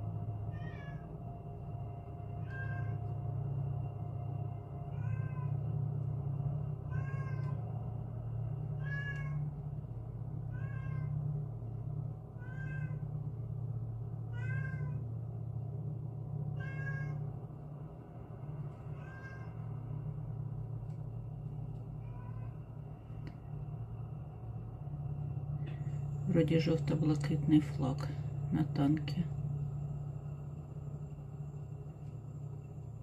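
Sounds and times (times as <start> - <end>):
steady low rumble: 0.0 - 33.0
cat meowing: 0.5 - 1.1, 2.4 - 3.1, 4.9 - 5.5, 6.9 - 7.6, 8.8 - 9.4, 10.5 - 11.2, 12.4 - 13.0, 14.3 - 15.0, 16.6 - 17.2, 19.0 - 19.6, 22.0 - 22.5.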